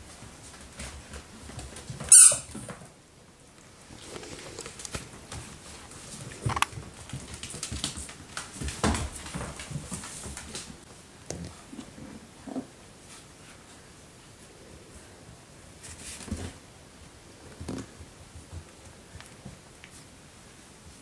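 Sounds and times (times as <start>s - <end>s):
puppies squeaking and yipping: 2.1s - 2.6s
dogs scuffling and mouthing: 3.6s - 13.8s, 15.7s - 16.7s.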